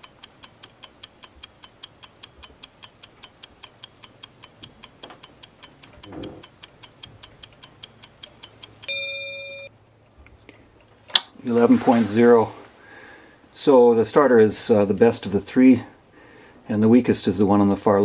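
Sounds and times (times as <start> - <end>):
timer ticking: 0.0 - 9.7
bell-like ding: 8.9 - 9.7.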